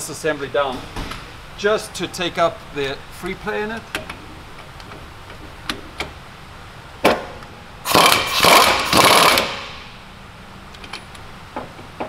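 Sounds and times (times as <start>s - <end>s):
powered wrench running: 7.9s - 9.9s.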